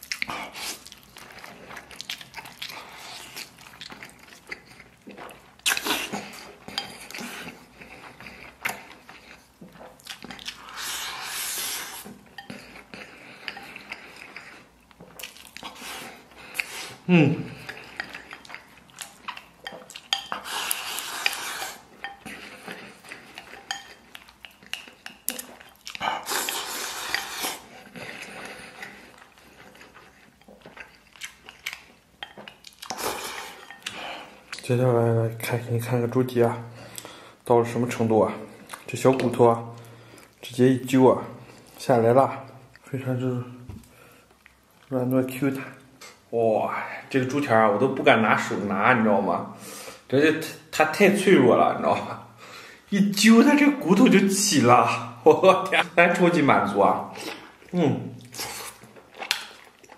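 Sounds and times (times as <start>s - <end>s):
chewing: 0.0s - 34.8s, 38.4s - 40.5s, 43.8s - 45.0s, 57.0s - 59.9s
person humming mm: 17.1s - 17.6s.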